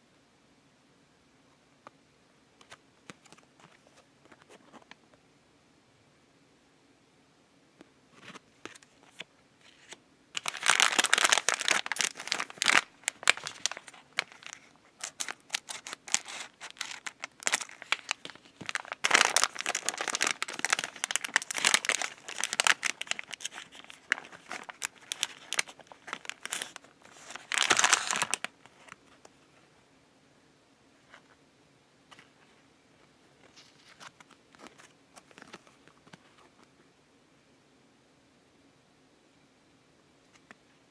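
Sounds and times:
plastic wrapper crinkling and tearing: 0:08.2 - 0:29.0.

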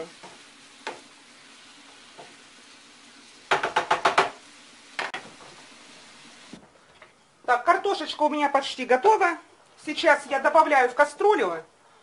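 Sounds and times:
vegetables sizzling in oil: 0:00.0 - 0:06.6
wooden spatula knocking on pan: 0:00.2 - 0:01.1, 0:03.5 - 0:04.4.

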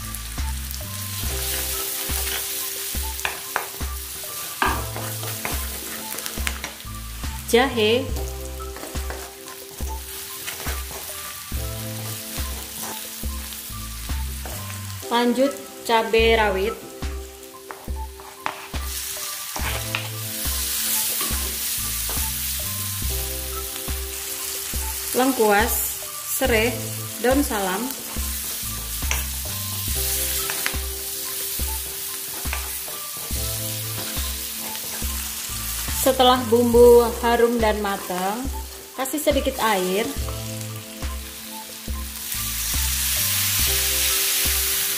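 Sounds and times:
food sizzling in hot oil: 0:00.0 - 0:44.9
low background music: 0:00.0 - 0:44.9
spatula scraping a wok: 0:01.2 - 0:06.9, 0:08.6 - 0:11.6, 0:17.7 - 0:22.6
spatula tapping the pan: 0:02.1 - 0:03.9, 0:04.6 - 0:06.8, 0:29.0 - 0:29.3, 0:32.3 - 0:33.4.

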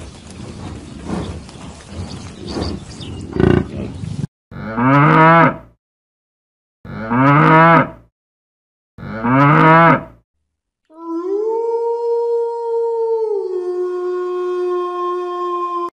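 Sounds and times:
cow mooing: 0:04.5 - 0:05.7, 0:06.9 - 0:08.0, 0:09.0 - 0:10.2.

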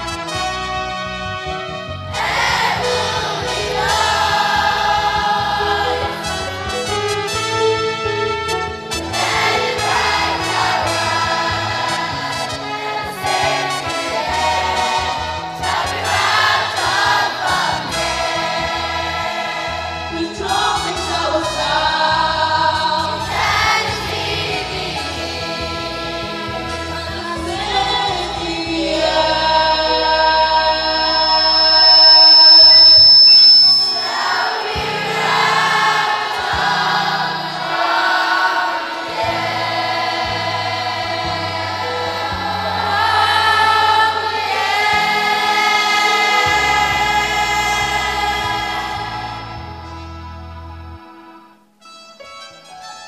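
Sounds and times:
children's choir singing: 0:02.2 - 0:06.9, 0:09.0 - 0:26.4, 0:27.9 - 0:33.0, 0:33.6 - 0:49.6.

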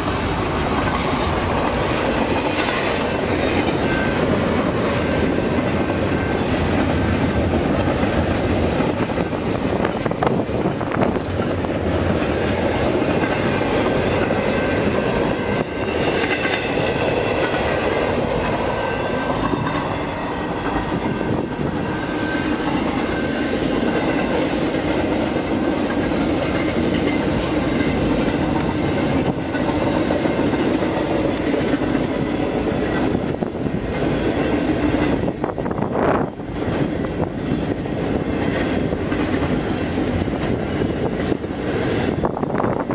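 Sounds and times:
train wheels clattering over joints: 0:00.0 - 0:42.9
high wheel squeal: 0:02.5 - 0:04.4, 0:21.0 - 0:23.6.

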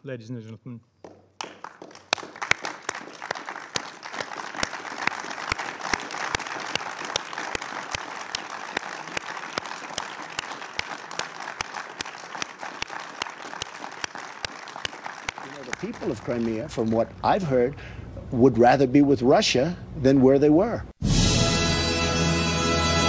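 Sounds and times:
close individual claps: 0:01.0 - 0:16.6
crowd applauding: 0:01.0 - 0:17.1.

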